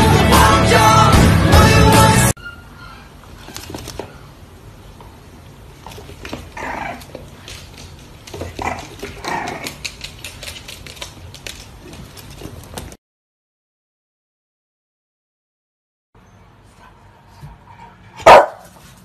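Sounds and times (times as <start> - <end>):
puppy claws clicking on floor: 3.4 - 4.1, 5.8 - 13.0
puppy growling: 6.2 - 7.2, 8.4 - 10.2.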